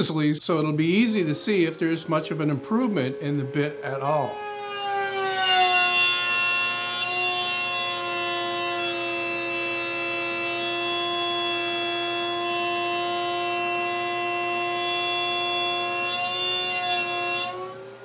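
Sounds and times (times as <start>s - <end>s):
router whining: 0.6s - 18.0s.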